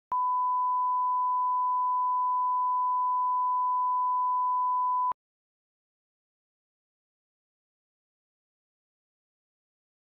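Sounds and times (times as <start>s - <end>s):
steady sine test tone: 0.1s - 5.2s.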